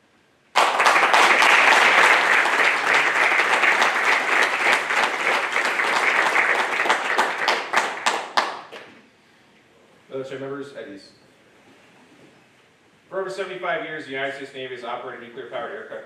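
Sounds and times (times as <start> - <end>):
audience applauding: 0.6 - 8.9.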